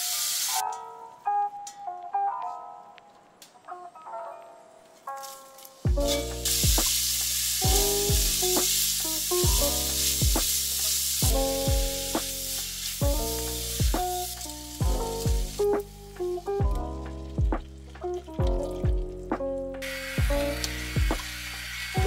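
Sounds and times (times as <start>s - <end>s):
onion sizzling in a pot: 0.0s - 0.6s, 5.1s - 18.8s, 19.8s - 22.0s
background music with a beat: 5.8s - 22.0s.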